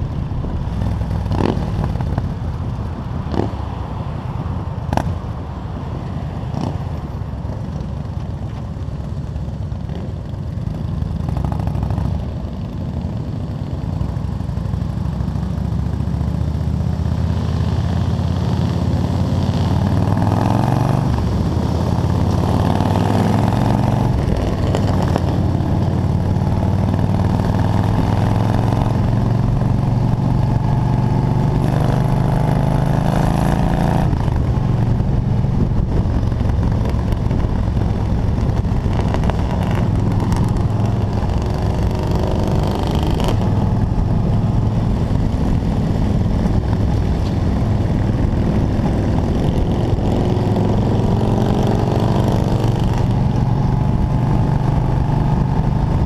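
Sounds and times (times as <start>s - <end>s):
motorcycle engine cruising: 0.0s - 56.0s
wind rush: 17.5s - 56.0s.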